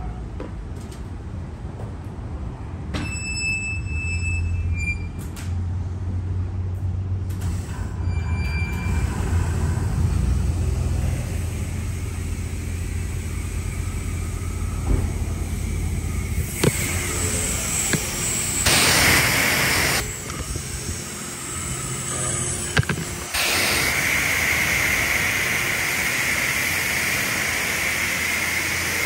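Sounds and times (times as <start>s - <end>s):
low mechanical rumble with hiss: 5.1s - 29.0s.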